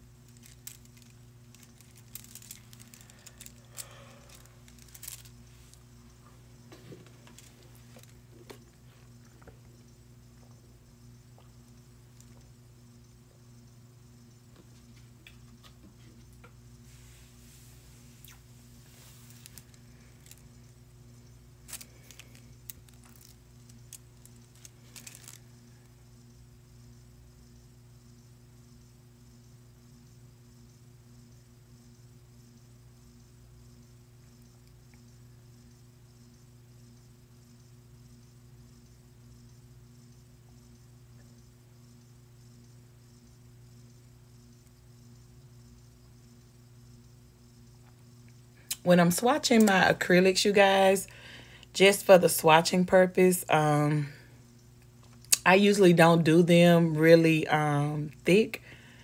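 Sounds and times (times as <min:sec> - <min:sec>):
steady low hum: 0:00.0 - 0:59.0
small hard objects clicking: 0:00.3 - 0:05.4, 0:21.6 - 0:25.4.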